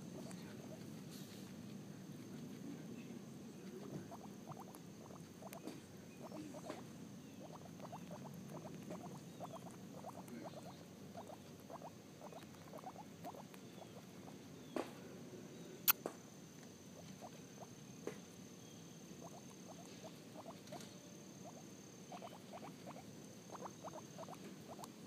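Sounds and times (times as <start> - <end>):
guinea pig chewing grass: 0.0 - 14.8, 16.6 - 25.0.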